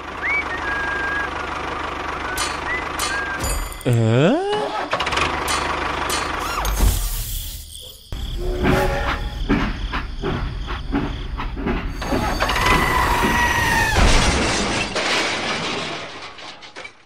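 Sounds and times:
train wheels clattering over rails: 8.2s - 17.0s
two-note train horn: 8.4s - 9.4s
loud crash: 12.1s - 17.0s.

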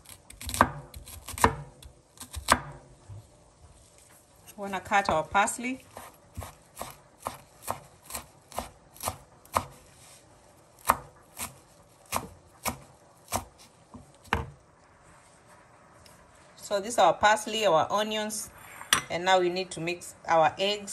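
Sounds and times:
knife chopping on cutting board: 0.3s - 2.8s, 5.9s - 9.8s, 10.8s - 14.5s.

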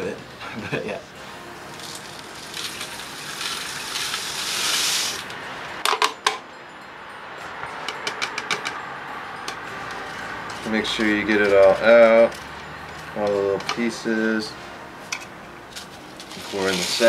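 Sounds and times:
liquid pouring into water hissing: 1.8s - 5.2s.

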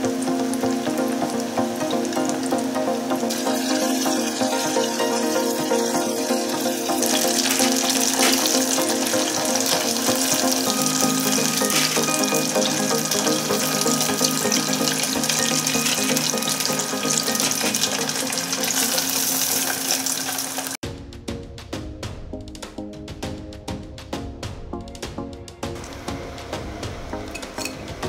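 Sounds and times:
background music: 0.0s - 20.2s, 20.8s - 28.0s
chicken deep-frying in oil: 0.1s - 20.8s.

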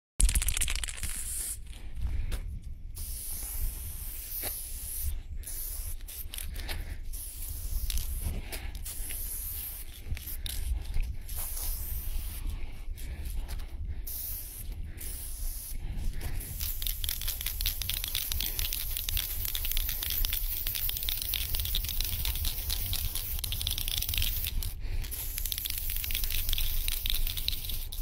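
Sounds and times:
spray paint can hissing: 0.2s - 1.8s, 3.0s - 28.0s
steady low rumble: 1.3s - 27.2s.

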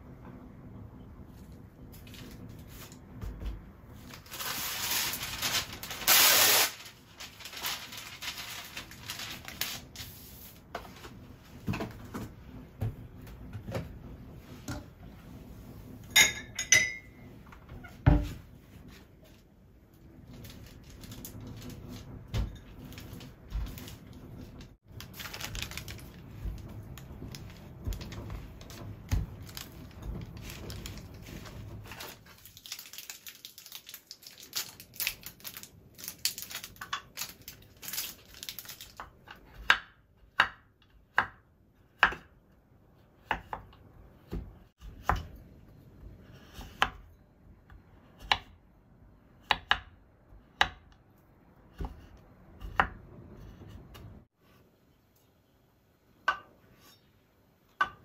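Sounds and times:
rustling and handling noise: 1.2s - 16.2s, 17.0s - 39.3s.

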